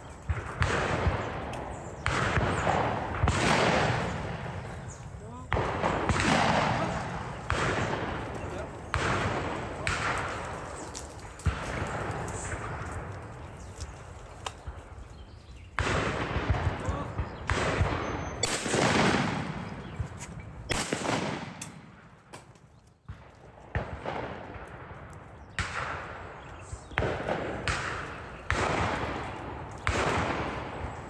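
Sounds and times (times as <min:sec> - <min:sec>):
shotgun shots echoing: 0:00.0 - 0:13.7, 0:15.6 - 0:31.0.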